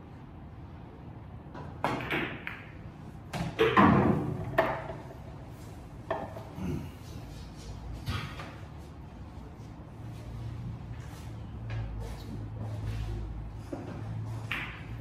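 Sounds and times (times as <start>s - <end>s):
pool balls clacking: 1.5s - 5.4s, 6.0s - 6.6s, 13.7s - 15.0s.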